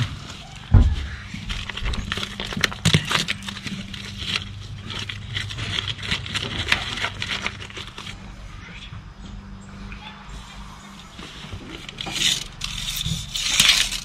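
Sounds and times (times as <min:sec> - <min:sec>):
steady low hum: 0:00.7 - 0:14.0
stone rubble rattling and crunching: 0:00.8 - 0:08.0, 0:11.9 - 0:14.0.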